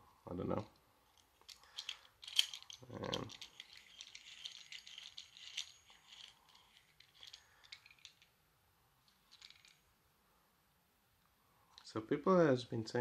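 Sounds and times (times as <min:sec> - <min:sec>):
metal clamp clicking and rattling: 0:01.1 - 0:08.3, 0:09.1 - 0:09.8.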